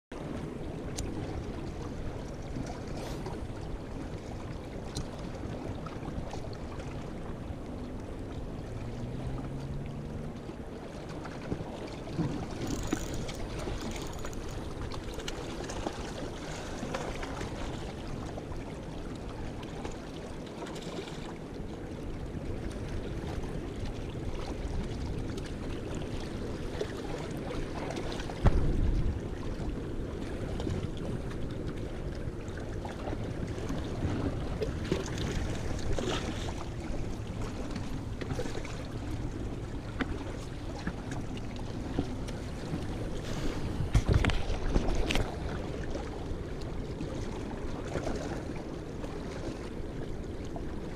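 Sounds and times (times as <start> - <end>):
river water rushing: 8.4 - 11.0, 12.4 - 18.2
wind buffeting microphone: 28.2 - 31.3, 41.7 - 46.2.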